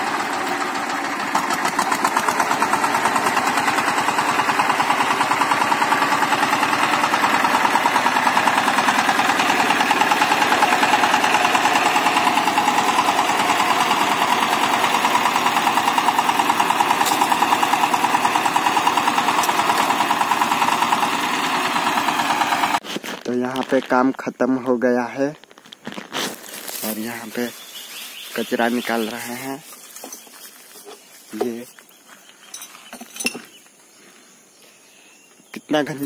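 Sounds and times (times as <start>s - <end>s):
tiller diesel engine chugging: 0.0s - 22.8s.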